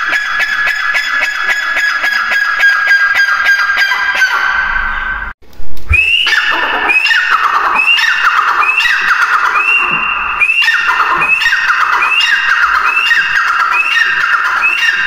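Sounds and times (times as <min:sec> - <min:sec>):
bird calling: 0:06.0 - 0:15.0.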